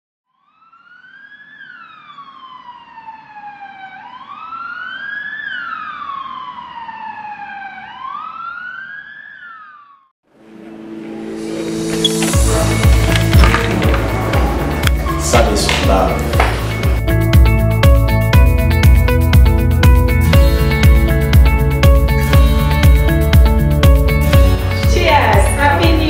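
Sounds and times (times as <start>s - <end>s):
emergency vehicle siren wailing: 0.3s - 25.9s.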